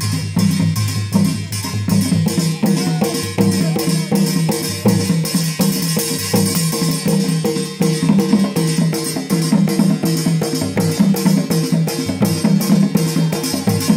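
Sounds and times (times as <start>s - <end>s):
fast drum beat: 0.0s - 13.9s.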